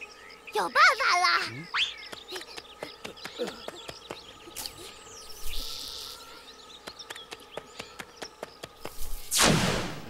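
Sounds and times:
insects chirping and clicking: 0:00.0 - 0:09.3
short hissing swish: 0:08.9 - 0:09.8.

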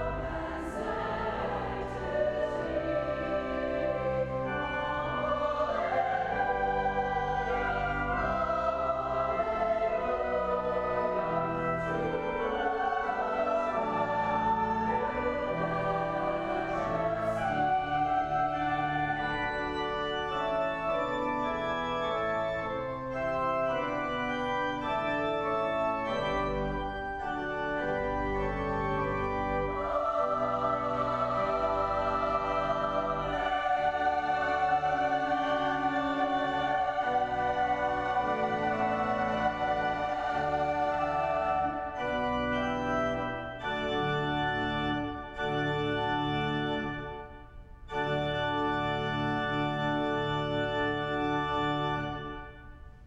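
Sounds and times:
women's choir singing: 0:00.0 - 0:19.2, 0:29.6 - 0:42.0
deep organ pedal bass notes: 0:00.0 - 0:52.7
pipe organ chords: 0:00.0 - 0:53.0.

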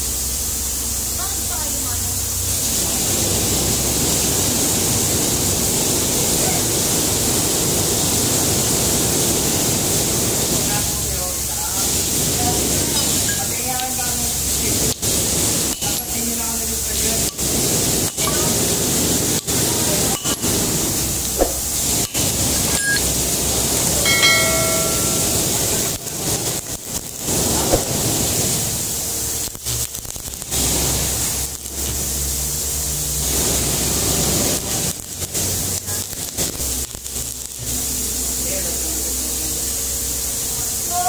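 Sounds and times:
welding arc crackling hiss: 0:00.0 - 0:41.0
short pitched tone: 0:24.1 - 0:25.9.

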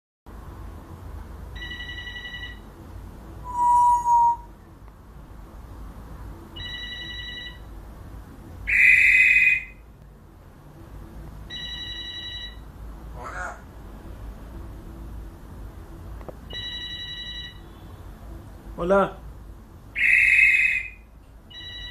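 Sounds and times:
parrot whistle: 0:03.4 - 0:04.5, 0:08.7 - 0:09.8, 0:20.0 - 0:21.9
shrill parrot call: 0:03.4 - 0:04.5, 0:08.7 - 0:09.8, 0:13.2 - 0:13.6, 0:20.0 - 0:21.9.

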